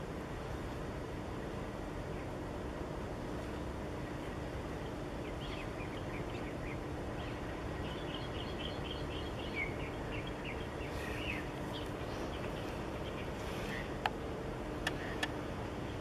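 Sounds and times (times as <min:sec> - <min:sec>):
faint hum: 0:00.0 - 0:16.0
small birds chirping: 0:03.9 - 0:16.0.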